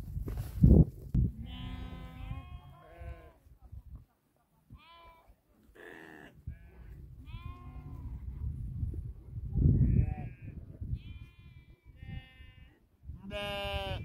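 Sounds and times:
sheep bleating: 1.4 - 3.4, 9.9 - 14.0.

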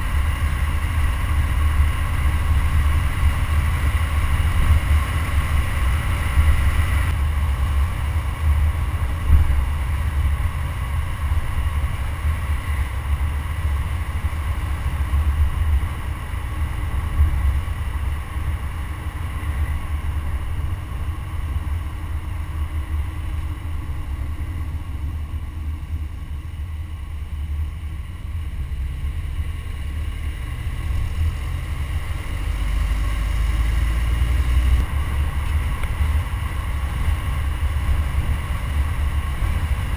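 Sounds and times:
road noise: 0.0 - 39.9
wind buffeting microphone: 34.7 - 39.9.

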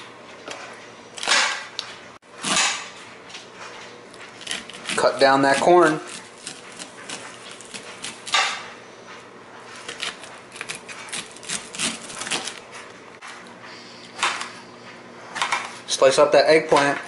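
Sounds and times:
knife scraping corn kernels: 4.3 - 8.6, 9.7 - 12.8.

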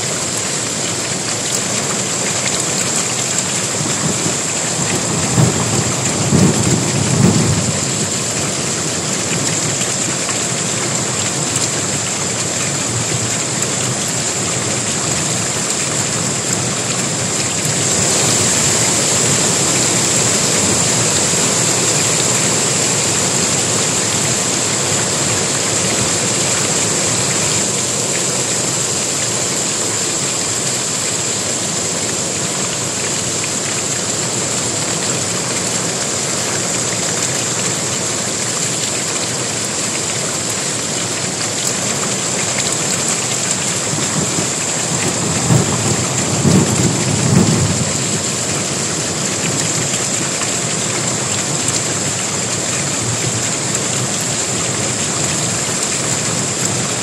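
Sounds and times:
heavy rain pouring: 0.0 - 57.0
thunder rumbling: 3.6 - 9.9, 15.3 - 28.2, 43.7 - 49.9.

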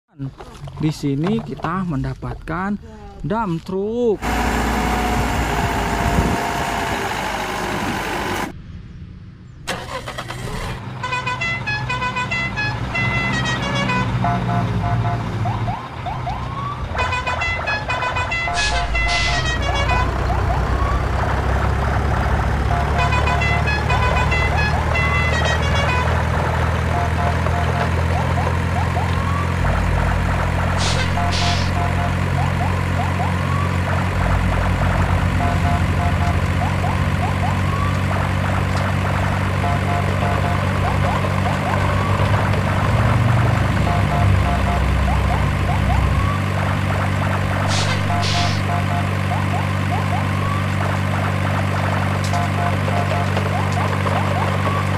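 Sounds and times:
truck engine running: 4.0 - 8.5, 9.7 - 54.9
electronic beeping tune: 18.3 - 21.0, 30.8 - 33.6, 35.3 - 38.0, 39.6 - 41.2, 43.8 - 46.6, 47.6 - 50.8, 52.2 - 54.9
sharp double sound: 18.4 - 19.9, 30.8 - 32.0, 47.6 - 48.8.

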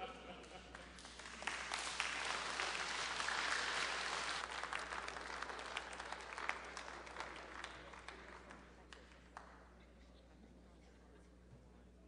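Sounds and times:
audience applauding: 0.5 - 8.7.

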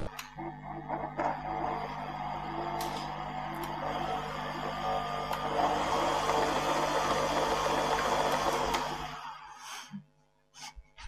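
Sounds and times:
electric stand mixer running: 0.3 - 9.6.

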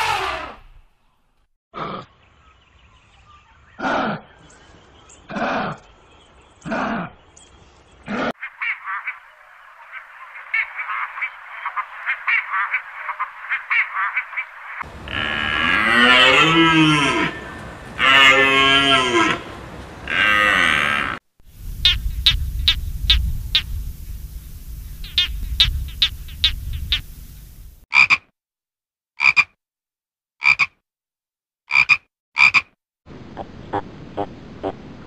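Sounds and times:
low rumble: 21.5 - 27.8
rapid clicking croaks: 21.6 - 27.5.

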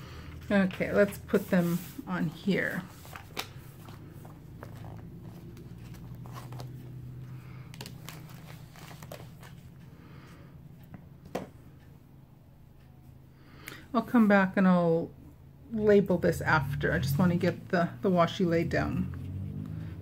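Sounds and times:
small taps and paper handling: 7.7 - 9.7.

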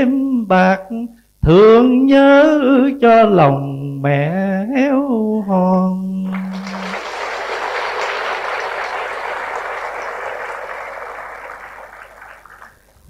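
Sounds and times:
large audience applauding: 6.3 - 13.0.

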